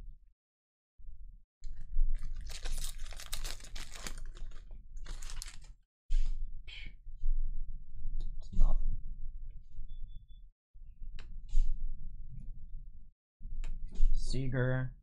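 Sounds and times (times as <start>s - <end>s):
foil wrapper tearing and crinkling: 2.2s - 5.7s.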